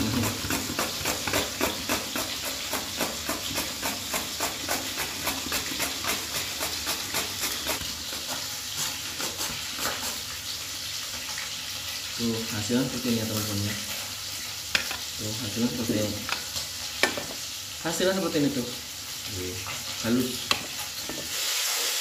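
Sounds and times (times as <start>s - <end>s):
rasping grater strokes: 0.0s - 10.3s
oil frying hiss: 0.0s - 22.0s.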